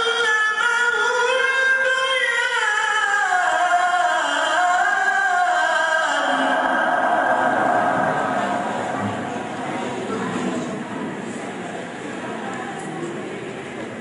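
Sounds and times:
man chanting melodically: 0:00.0 - 0:10.4.

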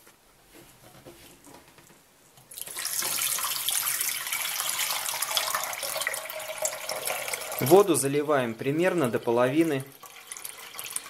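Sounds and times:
water pouring into a metal pot: 0:02.5 - 0:08.2, 0:08.9 - 0:11.0.

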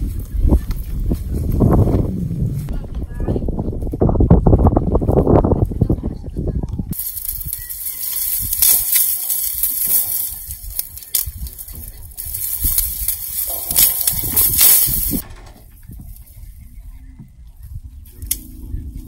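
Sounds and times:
dry grass rustling and crackling: 0:06.9 - 0:18.5.

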